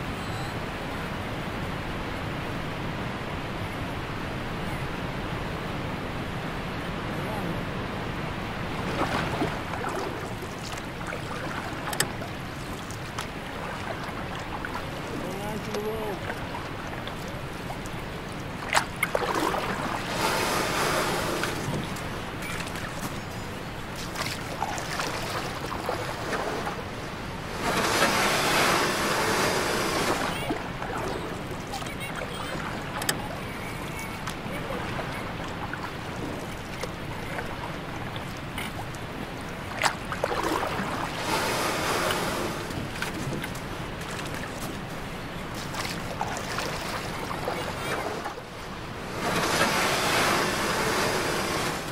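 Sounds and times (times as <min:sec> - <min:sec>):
paddles stroking water: 0:00.0 - 0:51.9
water splashing against raft: 0:07.3 - 0:51.9.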